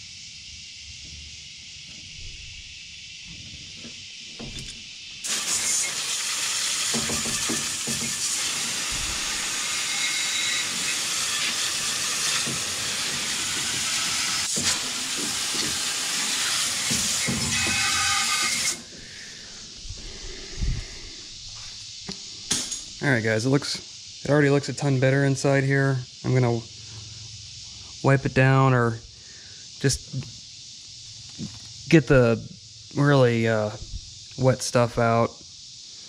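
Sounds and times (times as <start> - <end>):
water spray hissing: 5.2 - 21.9.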